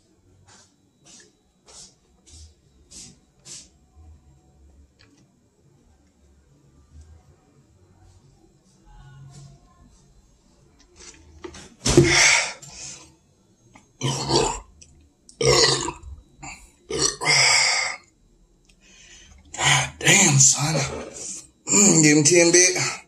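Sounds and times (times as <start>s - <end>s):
man belching loudly: 14.0s - 14.7s, 15.4s - 18.0s.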